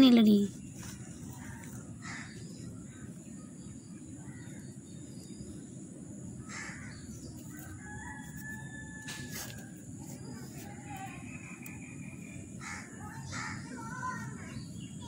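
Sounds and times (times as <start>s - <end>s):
steady low rumble: 0.0s - 7.8s
faint crow cawing: 1.9s - 2.4s, 6.4s - 7.0s, 12.6s - 14.2s.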